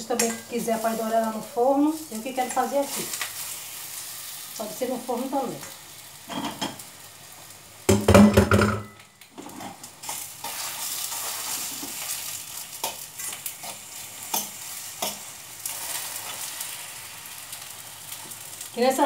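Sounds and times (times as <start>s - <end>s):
slices sizzling in a frying pan: 0.0s - 8.2s, 9.0s - 19.0s
pan and utensil clatter: 6.3s - 6.8s, 7.9s - 12.1s.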